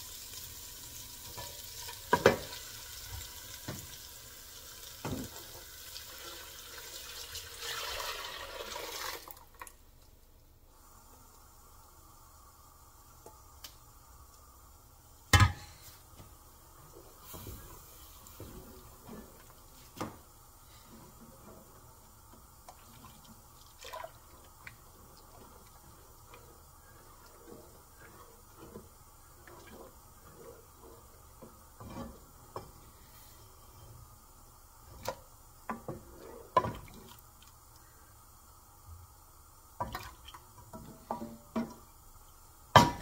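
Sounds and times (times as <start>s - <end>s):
liquid sloshing in a pot: 16.8s - 33.0s, 34.9s - 37.5s, 39.8s - 41.8s
spoon scraping against a pot: 31.8s - 32.7s.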